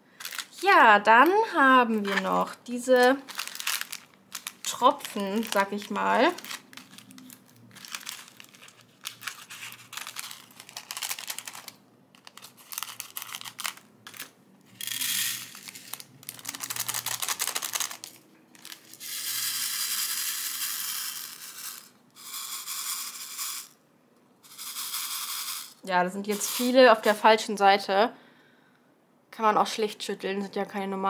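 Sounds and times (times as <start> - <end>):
plastic bag crinkling: 0.1 - 19.1
resin beads rattling in tray: 0.2 - 23.8, 24.4 - 27.2.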